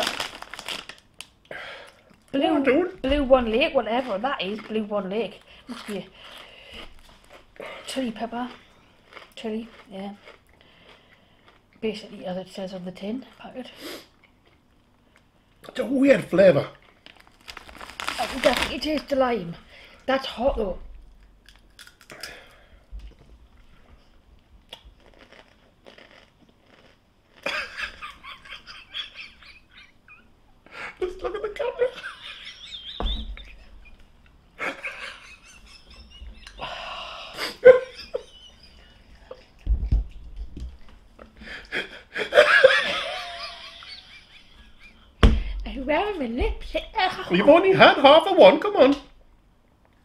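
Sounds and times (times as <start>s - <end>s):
crunchy chip being chewed: 8.4s - 11.6s, 16.7s - 18.8s, 21.4s - 22.5s, 24.7s - 27.5s
people laughing: 31.0s - 34.0s, 34.6s - 36.8s, 37.4s - 39.0s, 41.7s - 45.2s
low thump: 33.0s - 33.5s, 39.7s - 40.1s, 45.2s - 45.7s.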